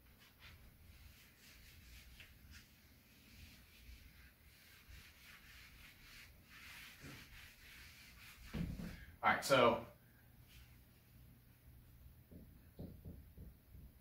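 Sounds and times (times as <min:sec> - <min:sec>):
eraser rubbing on whiteboard: 0:00.2 - 0:08.9.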